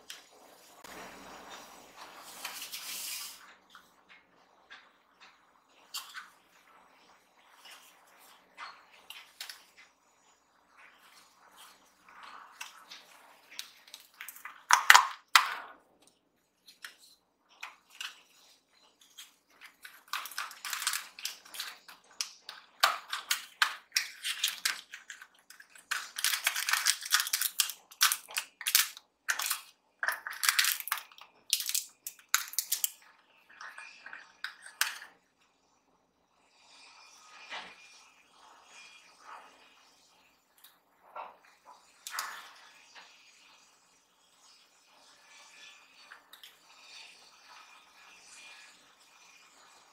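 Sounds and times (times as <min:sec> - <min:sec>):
papery crackling and rustling: 0:19.1 - 0:33.0.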